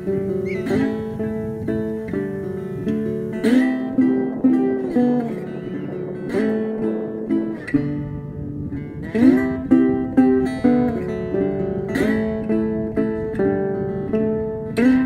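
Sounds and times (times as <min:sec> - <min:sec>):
acoustic guitar picking: 0:00.0 - 0:15.0
strummed guitar chord: 0:00.0 - 0:15.0.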